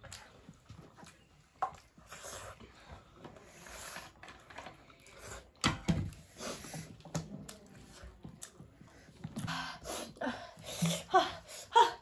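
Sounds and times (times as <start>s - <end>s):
soft chewing: 0.0s - 9.6s.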